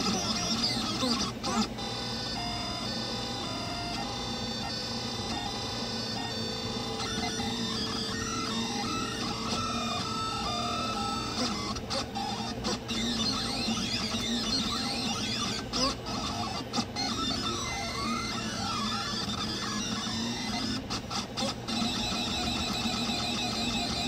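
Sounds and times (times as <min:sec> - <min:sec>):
steady printer hum: 0:00.0 - 0:24.0
stepper motors whining: 0:00.0 - 0:24.0.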